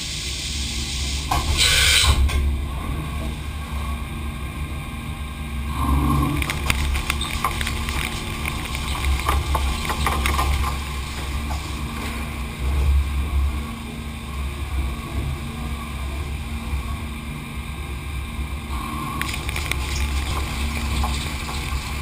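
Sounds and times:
machine hum and rumble: 0:00.0 - 0:22.0
chips and coolant crackling: 0:06.4 - 0:11.0, 0:19.1 - 0:22.0.

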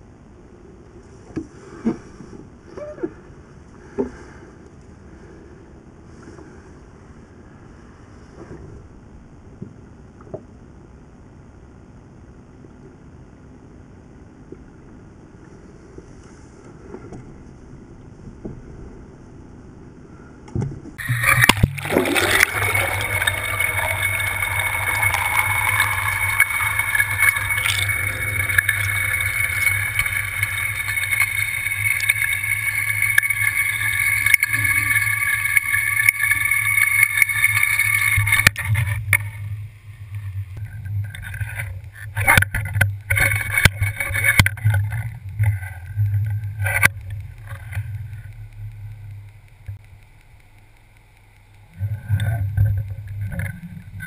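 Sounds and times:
underwater boat motor hum: 0:21.0 - 0:50.0.

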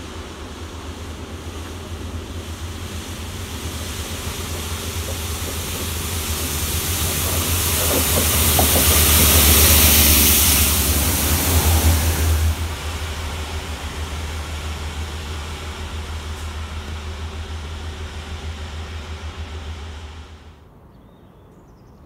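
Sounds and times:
hiss of water jet: 0:00.0 - 0:20.0
diesel engine of passing train: 0:00.0 - 0:20.9.

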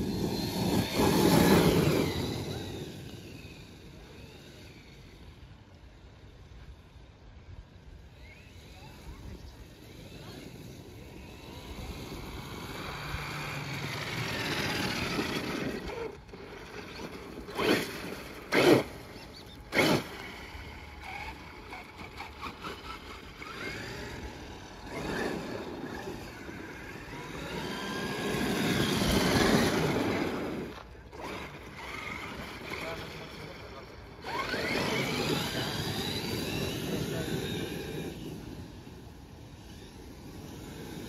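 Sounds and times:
electric motor whining: 0:00.0 - 0:05.6, 0:08.1 - 0:41.0.

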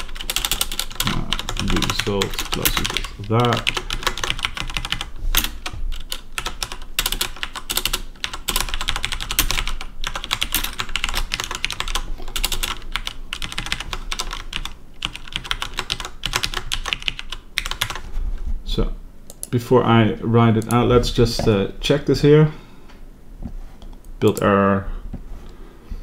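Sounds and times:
fast keyboard typing: 0:00.0 - 0:18.1.

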